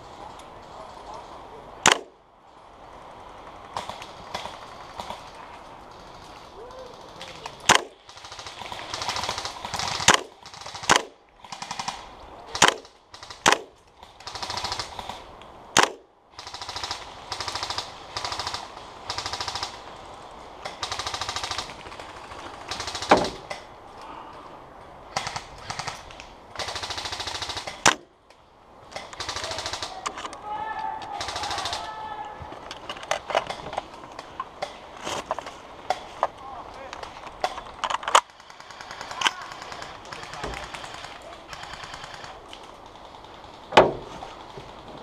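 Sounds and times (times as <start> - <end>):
airsoft gun single shots: 1.8 - 2.1, 15.8 - 16.0
airsoft gun full-auto bursts: 7.7 - 12.0, 12.6 - 15.2, 15.8 - 19.8, 20.6 - 23.4, 25.1 - 28.0, 29.0 - 30.0, 31.1 - 32.0, 38.2 - 43.8.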